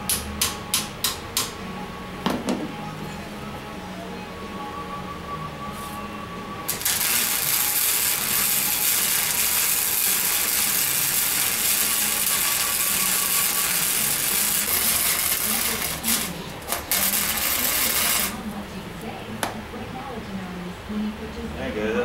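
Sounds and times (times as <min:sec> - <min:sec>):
welder arc crackling: 0:06.7 - 0:19.1.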